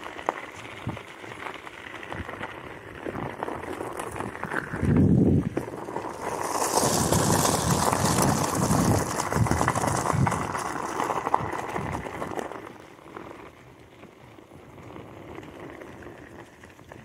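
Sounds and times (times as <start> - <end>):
scooter wheels crunching on gravel: 0.0 - 17.0.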